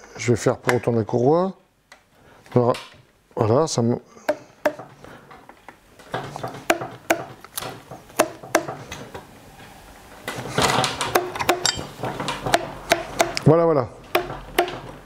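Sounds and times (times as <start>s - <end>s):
hand tools clicking on metal: 11.0s - 13.5s.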